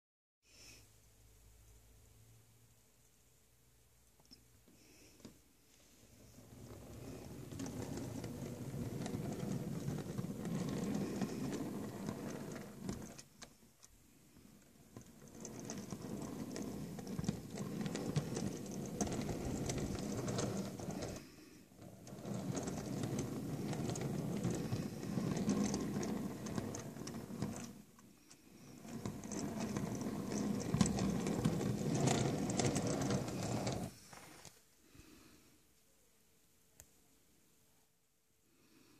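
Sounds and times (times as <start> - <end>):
model train wheels rumbling on track: 6.5 - 13.2, 14.9 - 21.2, 21.8 - 27.8, 28.7 - 33.9.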